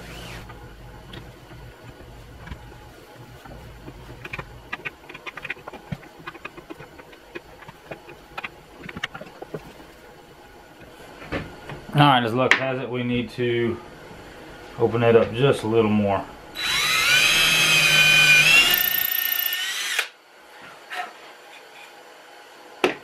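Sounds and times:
steady low hum: 0.0 - 18.7
small clicks and scrapes: 0.2 - 10.0.

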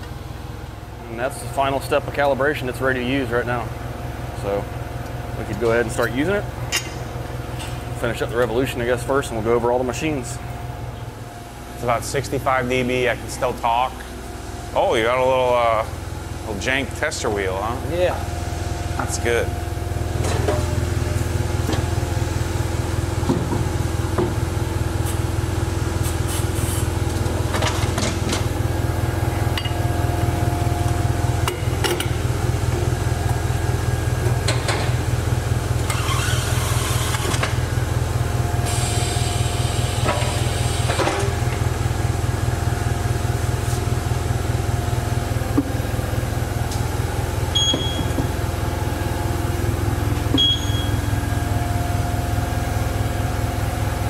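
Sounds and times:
machine humming: 0.0 - 26.0, 26.9 - 54.0
hiss: 38.6 - 41.0
short electronic beep: 47.5 - 48.2, 50.4 - 51.1.

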